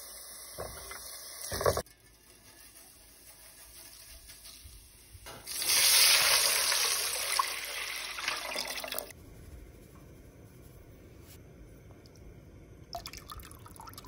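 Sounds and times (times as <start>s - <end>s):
water pouring into metal pot: 5.4s - 9.1s.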